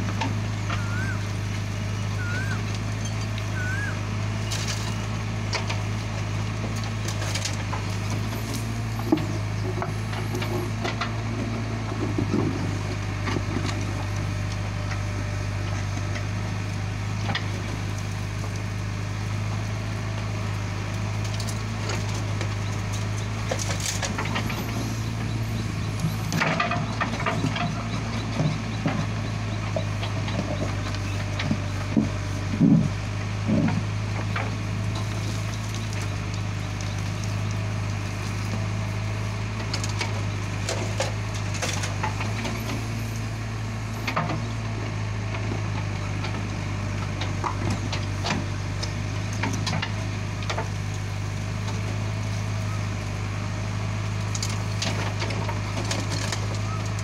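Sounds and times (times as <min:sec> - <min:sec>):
stones and earth crunching: 0:00.0 - 0:16.4, 0:17.3 - 0:44.1
diesel engine running: 0:00.0 - 0:57.0.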